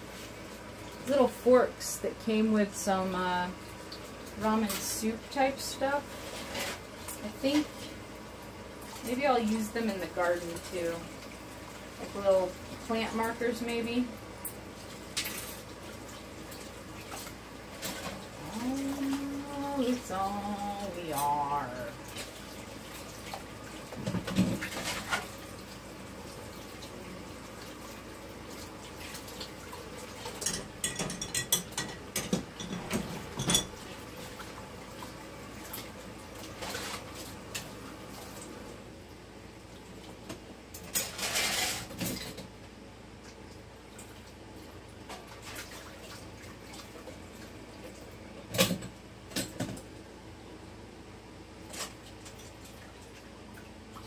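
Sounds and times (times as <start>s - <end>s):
dishes and utensils clinking: 30.4s - 33.8s.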